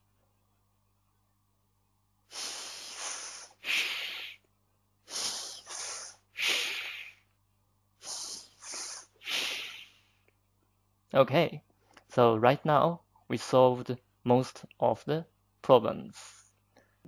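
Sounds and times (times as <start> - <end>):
man making hissing consonants: 2.3 - 7.3, 8.0 - 10.1.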